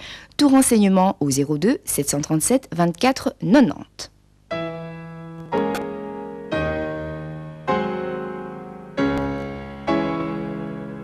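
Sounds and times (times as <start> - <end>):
slow piano chords: 4.5 - 11.0.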